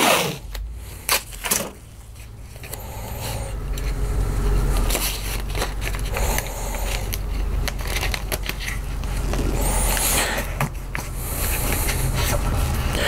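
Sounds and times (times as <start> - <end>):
adhesive tape crackling: 4.8 - 13.0.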